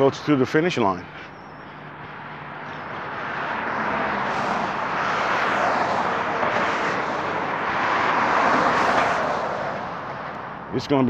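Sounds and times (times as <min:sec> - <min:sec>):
road traffic passing: 0:00.0 - 0:11.0.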